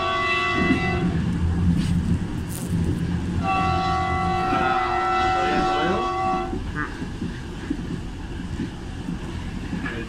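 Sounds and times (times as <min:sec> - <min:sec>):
train horn blast: 0:00.0 - 0:01.2, 0:03.4 - 0:06.6
train rumbling on track: 0:00.0 - 0:10.0.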